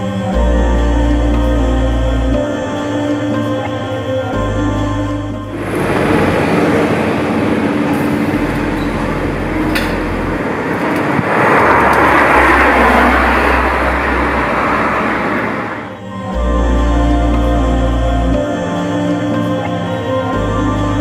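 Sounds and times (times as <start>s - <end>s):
heavy vehicle passing: 5.5s - 16.0s
road traffic rushing: 5.5s - 16.0s.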